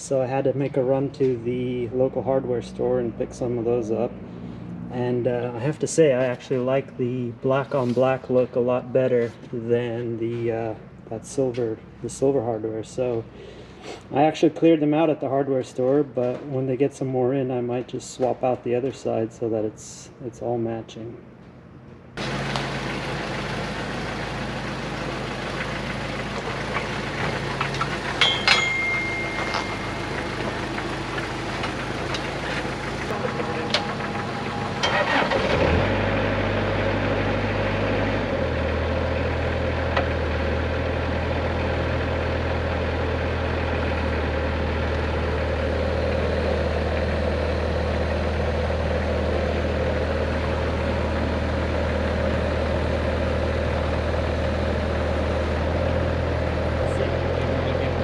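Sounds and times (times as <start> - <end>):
car engine idling: 22.2 - 58.0.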